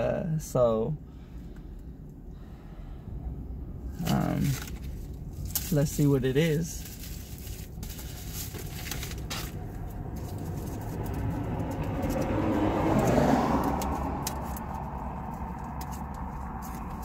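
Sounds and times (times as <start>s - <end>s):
steady low hum: 0.0s - 12.6s
package being opened by hand: 4.0s - 5.8s, 6.8s - 11.3s
car passing outside: 8.0s - 17.0s.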